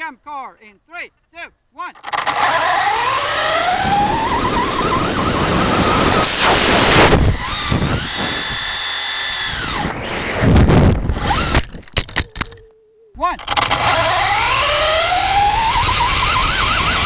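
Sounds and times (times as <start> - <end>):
electric motor whine: 2.0 - 11.7, 13.4 - 17.0
rocket firing hiss: 5.7 - 7.3.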